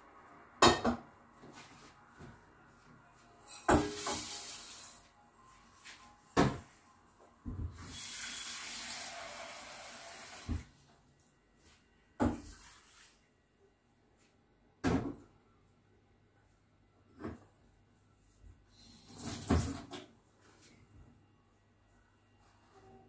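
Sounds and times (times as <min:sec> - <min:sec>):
water running: 0:07.8 - 0:10.5.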